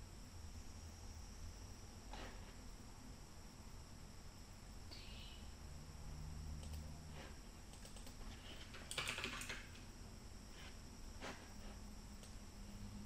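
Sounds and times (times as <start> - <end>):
computer keyboard typing: 7.6 - 9.8.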